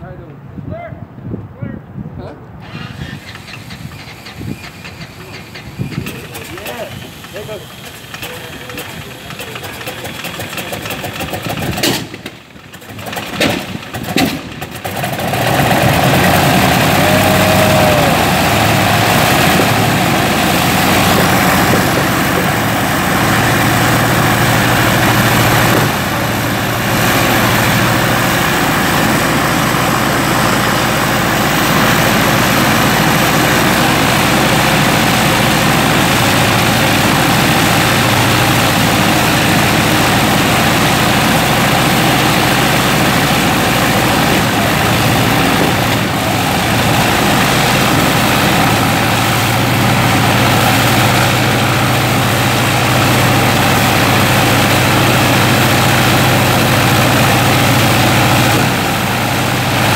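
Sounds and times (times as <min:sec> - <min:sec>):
radial aircraft engine running: 0:02.6 - 0:59.9
engine pops: 0:02.7 - 0:16.5, 0:19.2 - 0:26.8.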